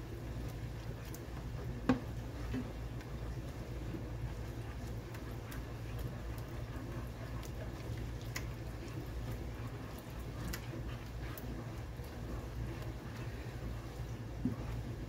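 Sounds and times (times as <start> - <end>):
small clicks and pops: 7.4 - 8.6.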